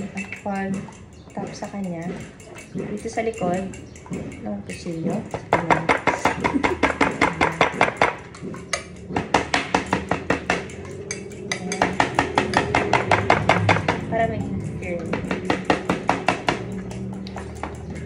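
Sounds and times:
knife tapping on meat: 5.3 - 10.8.

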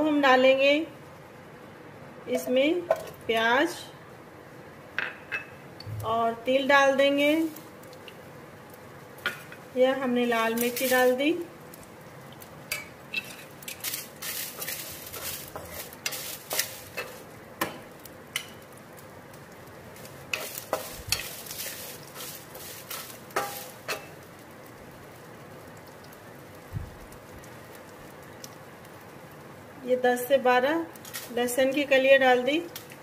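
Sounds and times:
food sizzling in hot oil: 0.0 - 33.0
spatula scraping a pan: 12.7 - 17.3, 20.0 - 24.2.

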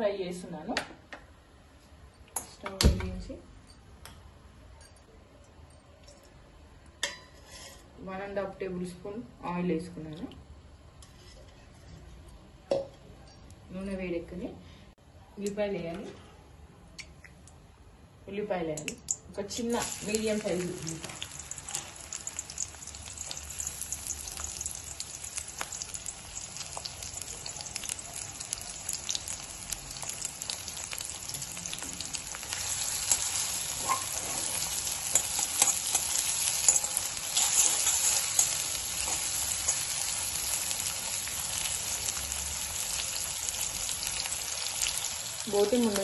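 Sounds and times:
spoon scraping a pan: 7.0 - 8.0, 11.0 - 12.2, 33.0 - 39.8
onion sizzling in hot oil: 19.4 - 46.0.

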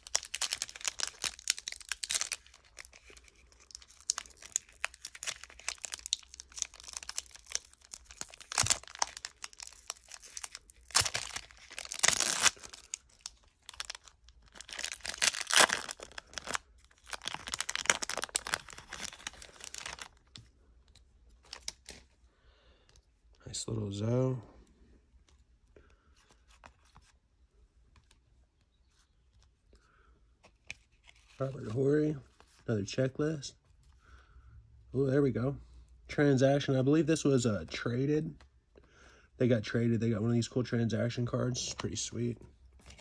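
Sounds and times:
foil wrapper tearing and crinkling: 0.0 - 20.3.

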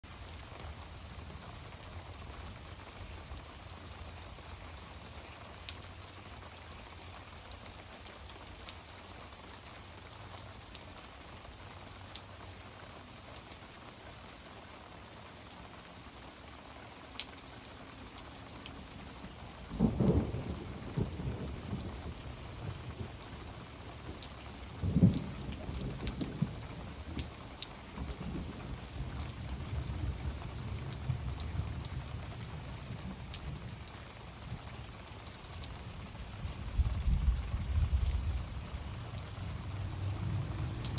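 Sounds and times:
raindrops ticking close by: 0.0 - 40.9
steady rain falling: 0.0 - 40.9
thunder rumbling: 19.7 - 23.3, 24.0 - 27.2.

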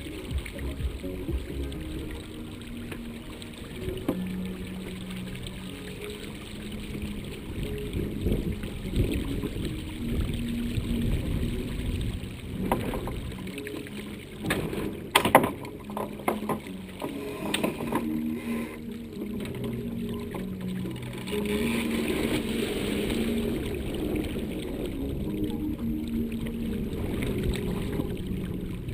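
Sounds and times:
water splashing along hull: 0.0 - 28.9
wind on microphone: 6.7 - 20.2, 21.0 - 28.9
sharp knocks from boat: 12.6 - 13.3, 14.4 - 18.3.

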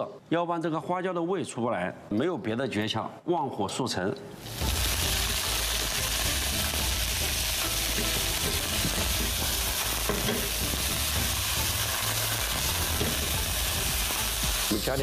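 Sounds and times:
sprouts sizzling in hot oil: 4.4 - 15.0.

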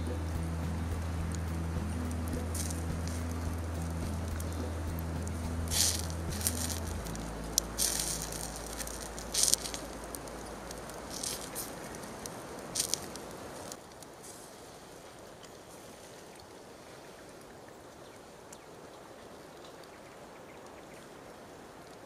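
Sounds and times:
low steady hum: 0.0 - 13.8
wood fire crackling: 0.0 - 15.8.

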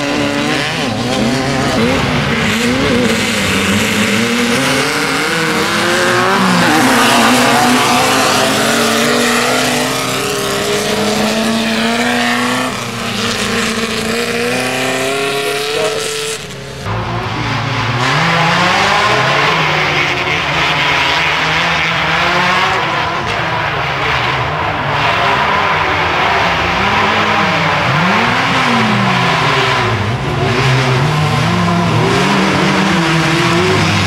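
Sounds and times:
race buggy engines revving: 0.0 - 34.0.

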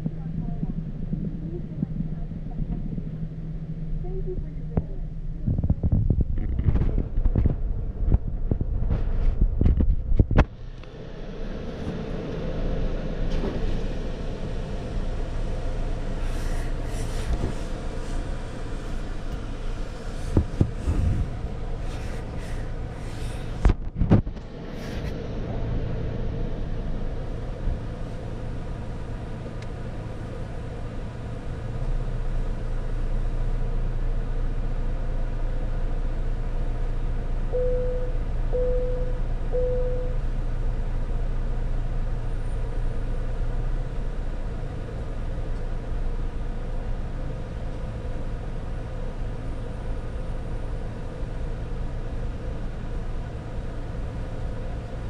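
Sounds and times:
car idling: 0.0 - 55.0
short beeps: 37.6 - 40.2.

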